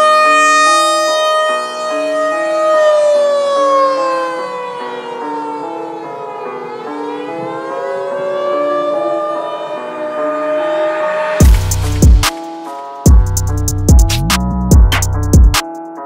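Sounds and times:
synth tone sliding like siren: 0.0s - 12.8s.

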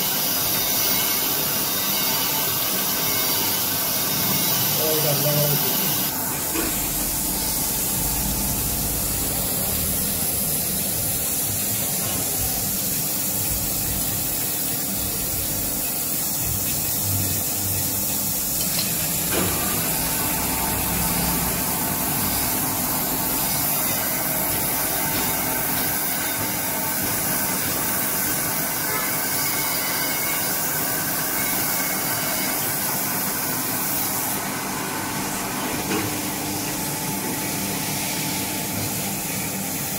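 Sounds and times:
coolant spraying hiss: 0.0s - 39.9s
low machine hum: 4.4s - 12.8s.

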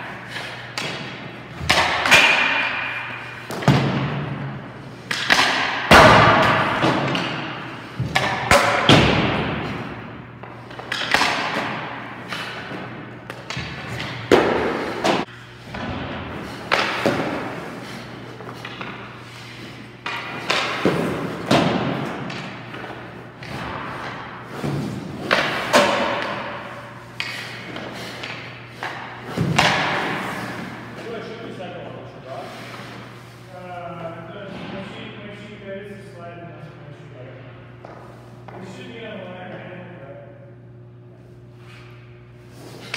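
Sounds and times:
hockey pucks cracking with echo: 0.0s - 33.2s.

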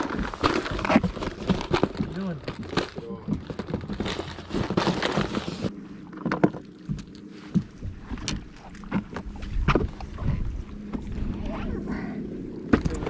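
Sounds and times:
plastic box rattling: 0.0s - 5.7s.

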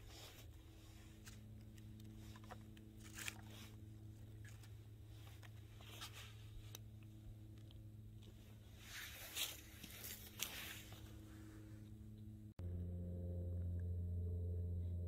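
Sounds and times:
sticks rustling on campfire: 0.0s - 6.8s, 8.5s - 11.6s
faint low hum: 0.0s - 15.0s.

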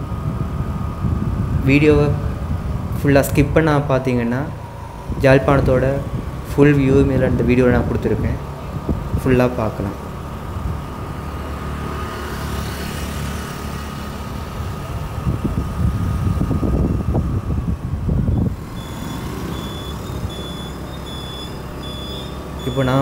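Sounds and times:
vehicle engine and road rumble: 0.0s - 23.0s
electronic beeping: 18.6s - 23.0s.

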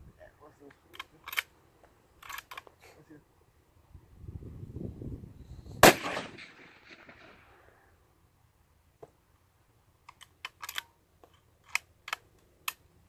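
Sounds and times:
rifle bolt metallic clicks: 0.6s - 1.5s, 2.2s - 2.8s, 10.0s - 12.9s
rifle shot with echo: 5.8s - 7.6s.

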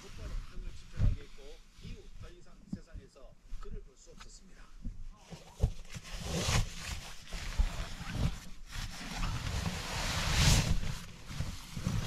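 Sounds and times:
soft thumps on mattress: 0.5s - 3.9s
sleeping bag rustling: 4.9s - 12.0s.

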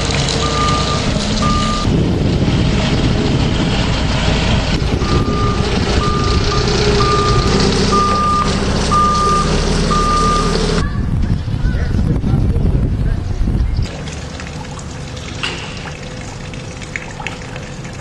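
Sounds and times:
diesel engine running: 0.0s - 11.6s, 12.4s - 18.0s
reversing alarm beeping: 0.4s - 1.9s, 5.0s - 10.8s.

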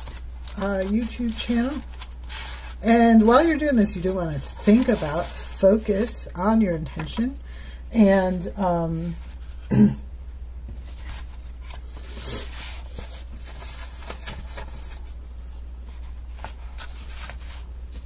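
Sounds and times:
paper rustling: 0.0s - 6.2s, 10.8s - 15.2s, 15.8s - 18.0s
steady low hum: 0.0s - 18.0s.

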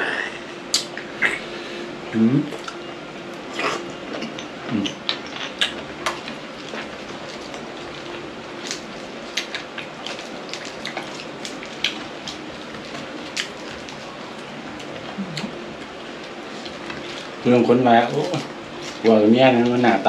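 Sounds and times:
faint low hum: 0.0s - 20.0s
chewing clicks and smacks: 4.2s - 14.1s.

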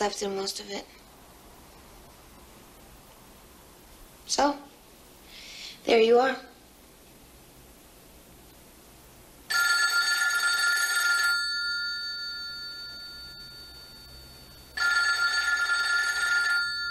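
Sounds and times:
telephone bell ringing: 9.5s - 16.9s.

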